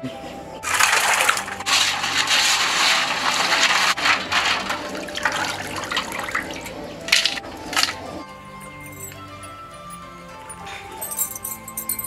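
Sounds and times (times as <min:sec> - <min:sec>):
water splashing in a basin: 0:00.6 - 0:08.2
crab shells clattering: 0:00.7 - 0:08.2.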